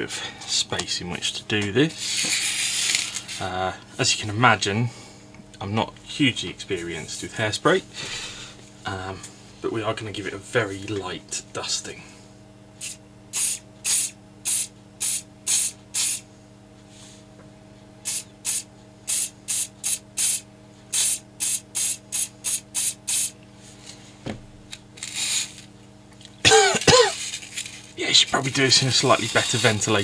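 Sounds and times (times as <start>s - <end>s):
aerosol spray bursts: 12.8s - 16.2s, 18.1s - 23.3s.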